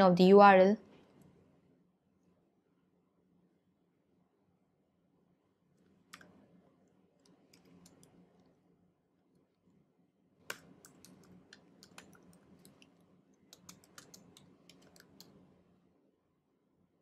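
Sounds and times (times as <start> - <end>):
keyboard typing: 10.4 - 12.9, 13.5 - 15.4.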